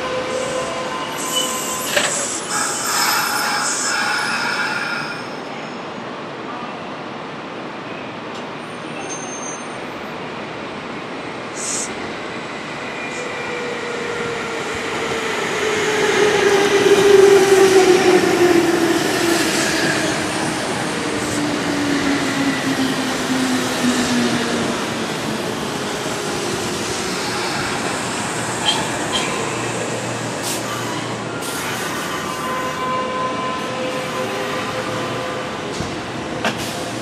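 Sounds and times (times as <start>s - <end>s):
electric train passing at speed: 0.0s - 37.0s.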